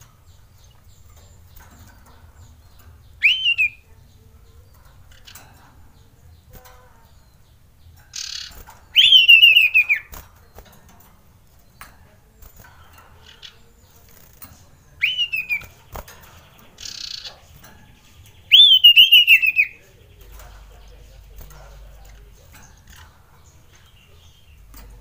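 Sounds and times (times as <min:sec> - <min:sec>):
bird singing whistled phrases: 0:03.2 - 0:03.8, 0:08.2 - 0:10.1, 0:15.0 - 0:15.7, 0:18.5 - 0:19.8.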